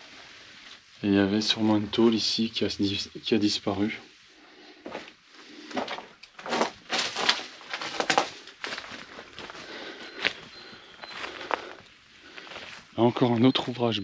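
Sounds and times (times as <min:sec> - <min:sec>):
footsteps on dry forest ground: 0:04.8 - 0:13.9.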